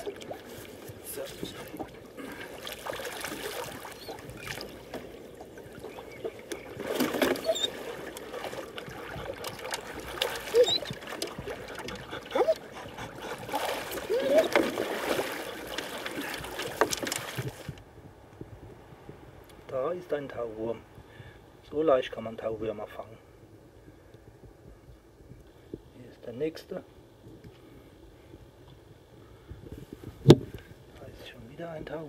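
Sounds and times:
water splashing at boat: 0:00.0 - 0:17.8
knocks on boat: 0:30.2 - 0:30.6.

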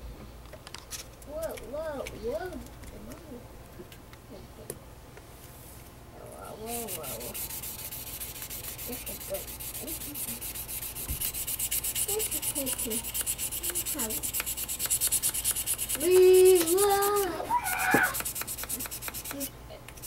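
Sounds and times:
abrasive pad scratching metal: 0:06.6 - 0:19.5.

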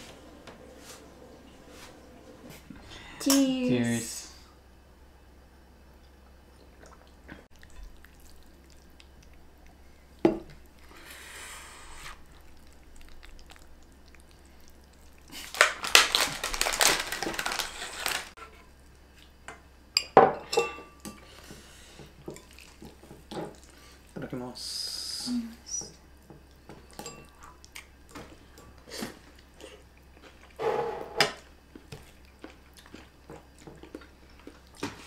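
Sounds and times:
utensils clinking against bowls: 0:20.0 - 0:21.2, 0:26.9 - 0:27.4.

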